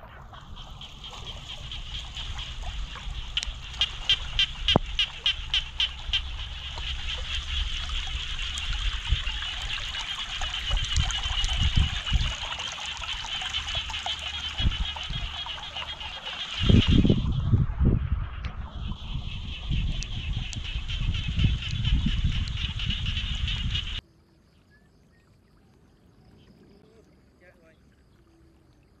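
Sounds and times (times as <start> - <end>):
water trickling: 0.0 - 17.7, 18.4 - 29.0
frogs and insects chorus: 0.0 - 29.0
sharp rhythmic calls: 0.4 - 7.7.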